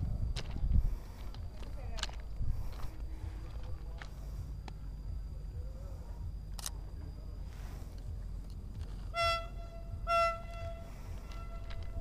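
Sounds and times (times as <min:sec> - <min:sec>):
train horn toots: 0:09.1 - 0:12.0.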